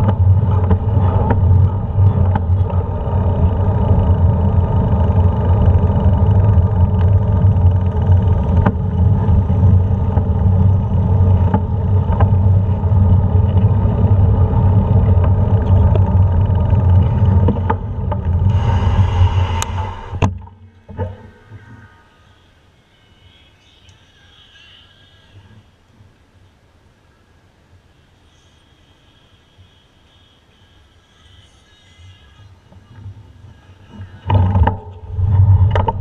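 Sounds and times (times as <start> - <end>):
bike road noise: 0.0 - 36.0
brief hiss: 18.5 - 20.3.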